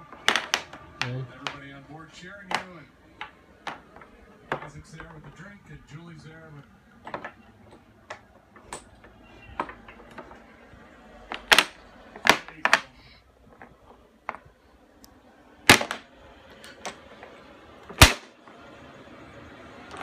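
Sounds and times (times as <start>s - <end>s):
dominoes clacking on wooden tray: 0.0s - 1.8s, 2.4s - 5.4s, 7.0s - 14.5s, 15.7s - 18.4s.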